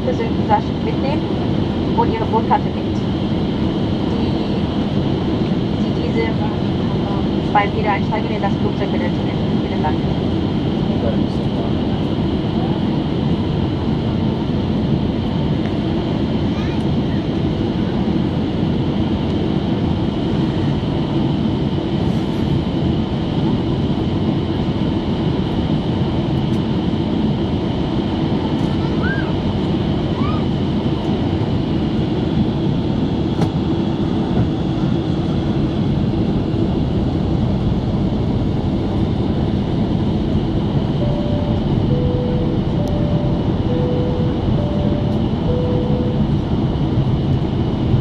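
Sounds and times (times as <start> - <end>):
airplane cabin engine and airflow rush: 0.0 - 48.0
faint two-note tone: 41.0 - 46.7.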